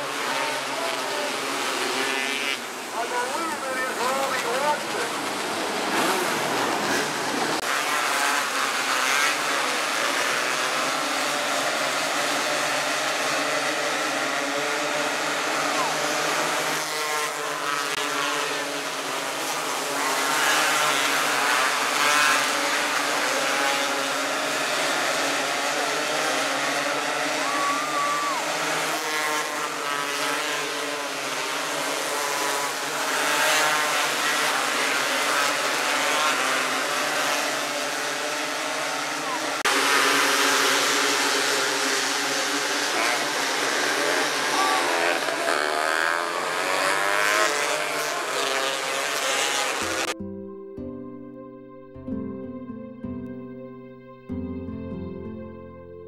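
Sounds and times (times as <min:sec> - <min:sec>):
small racing engines revving: 0:00.0 - 0:50.2.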